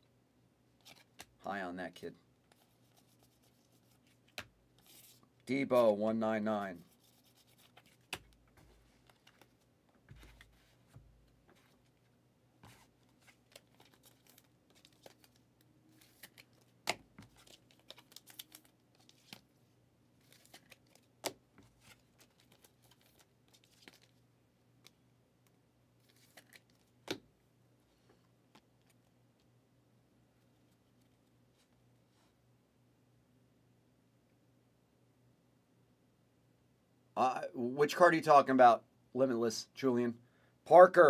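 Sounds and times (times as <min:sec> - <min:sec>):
trading cards rustling: 0:00.8 - 0:01.4, 0:02.5 - 0:05.2, 0:06.9 - 0:12.1, 0:12.7 - 0:19.6, 0:20.2 - 0:24.2, 0:26.0 - 0:27.2.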